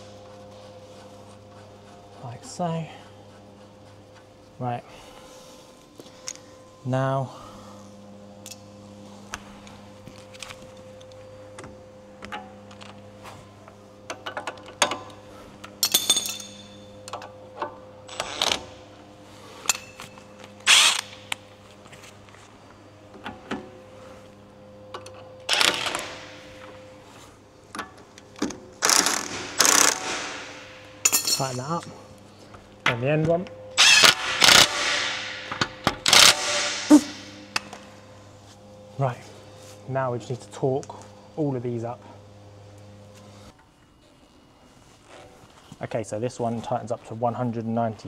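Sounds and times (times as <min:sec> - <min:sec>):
tools clanking on metal: 0:15.8 - 0:17.3, 0:31.0 - 0:31.9
cordless power tool bursts: 0:20.6 - 0:21.1, 0:28.8 - 0:30.5, 0:33.8 - 0:35.4, 0:36.0 - 0:37.0.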